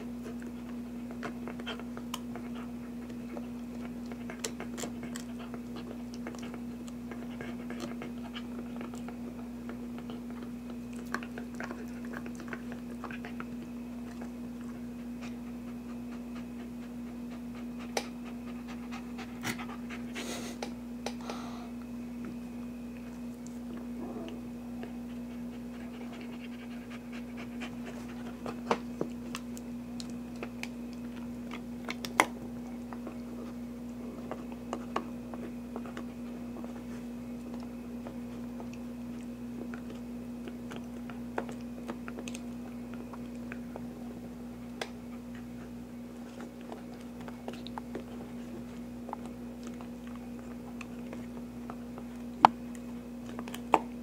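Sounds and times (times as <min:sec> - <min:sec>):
puppy gnawing a chew bone: 0:00.0 - 0:21.2, 0:21.8 - 0:54.0
steady hum: 0:00.0 - 0:54.0
puppy panting: 0:00.1 - 0:20.6, 0:24.8 - 0:29.2, 0:44.8 - 0:52.3.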